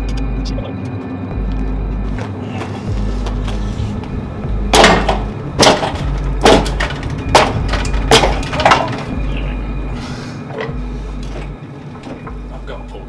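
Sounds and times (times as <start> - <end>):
trolley jack clacking: 4.8 - 9.4.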